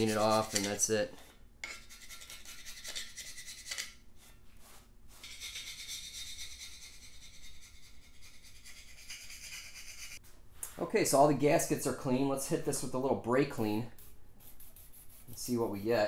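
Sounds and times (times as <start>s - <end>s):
gasket scraper rasping on metal: 0.0s - 0.9s.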